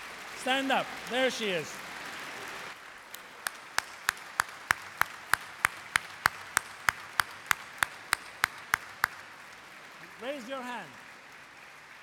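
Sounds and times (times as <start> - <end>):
audience applause: 0.0 - 12.0
sharp single claps: 3.1 - 9.4.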